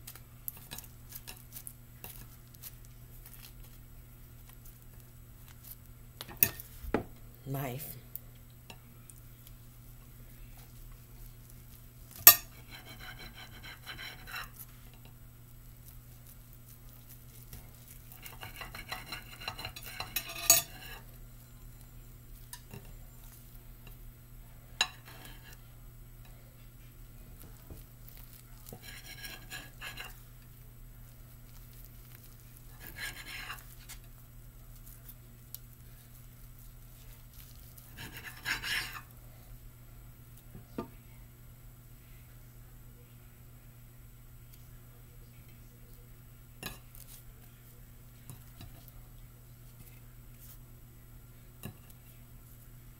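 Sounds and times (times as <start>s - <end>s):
knife sawing through sushi roll: 12.6s - 14.6s, 18.2s - 20.2s, 28.7s - 30.2s, 32.7s - 34.0s, 37.9s - 39.1s.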